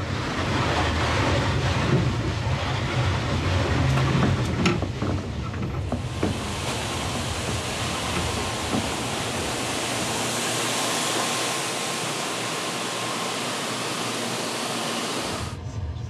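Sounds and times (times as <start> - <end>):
water jets spraying hiss: 5.9 - 15.6.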